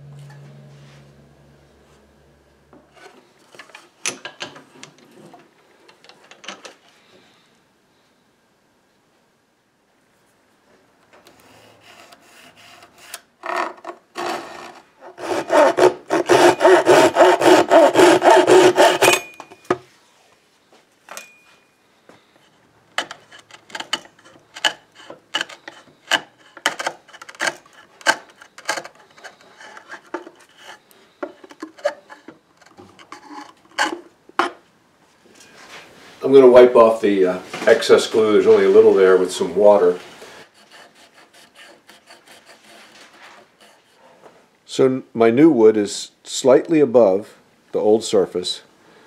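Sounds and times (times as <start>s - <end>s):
hand saw cutting wood: 11.5s - 19.4s, 23.0s - 34.0s, 40.4s - 44.0s
chisel paring wood: 15.2s - 19.6s, 23.0s - 34.6s.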